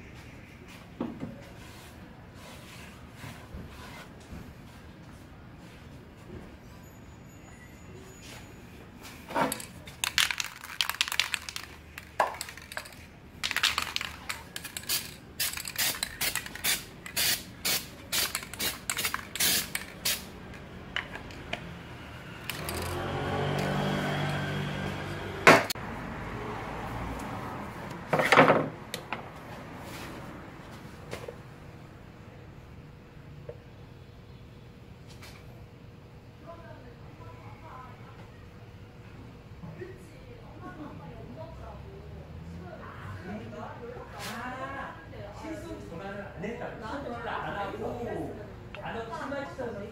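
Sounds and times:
metallic scraping and clinking: 22.4s - 23.0s.

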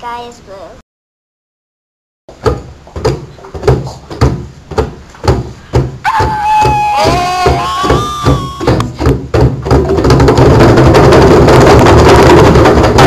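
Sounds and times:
steady drum beat: 2.6s - 13.0s.

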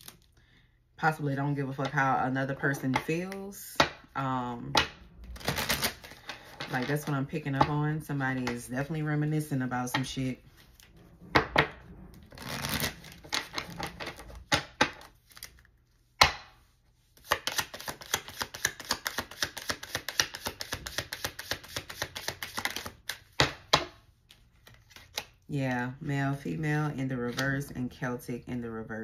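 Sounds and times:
cards clicking while shuffled: 17.2s - 23.3s
cards tapping: 17.2s - 24.0s.

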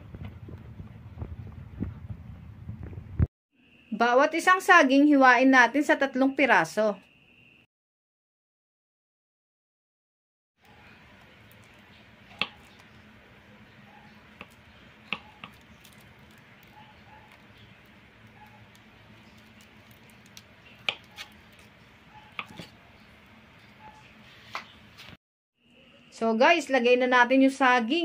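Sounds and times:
knife slicing bananas: 12.3s - 12.9s, 18.4s - 22.8s.

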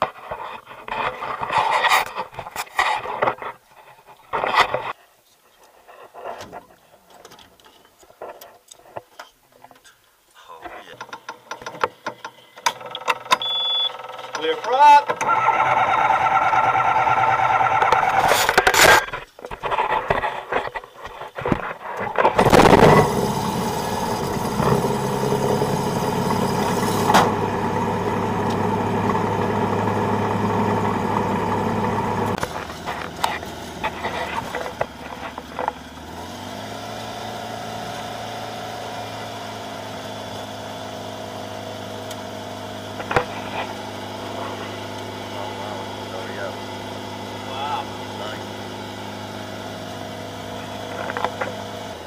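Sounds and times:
light aircraft engine idling: 23.1s - 36.0s.

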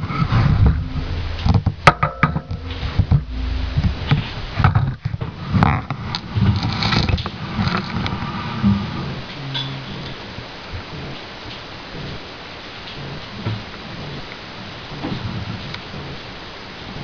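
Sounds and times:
microphone handling rumble: 0.0s - 9.3s.

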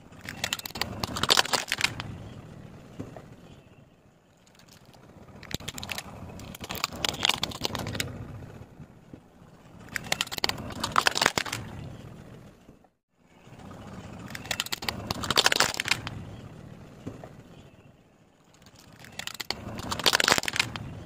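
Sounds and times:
plastic toys crunching under a tyre: 0.0s - 3.5s, 4.4s - 12.8s, 13.6s - 17.6s, 18.4s - 21.0s
low rumble: 1.9s - 15.4s.

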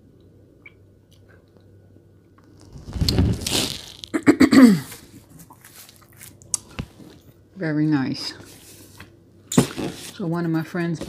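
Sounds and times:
plastic wrappers crinkling: 2.4s - 4.2s, 5.0s - 7.2s.

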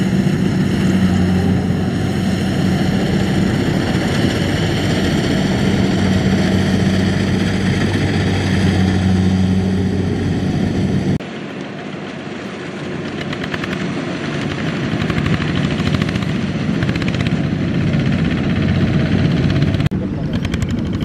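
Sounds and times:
diesel tractor engine running: 0.0s - 11.2s.

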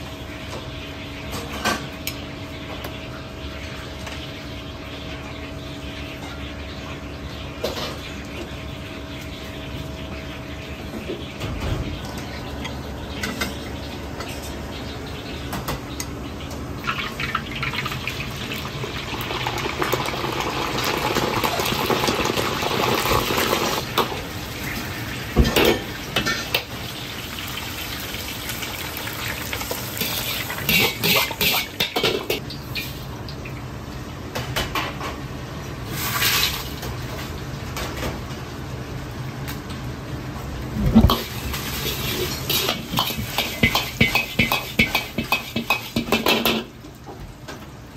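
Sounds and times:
frying oil hissing: 16.8s - 33.6s, 35.8s - 37.6s, 40.7s - 46.7s
metal clatter against wok: 30.0s - 32.4s, 41.0s - 46.7s.

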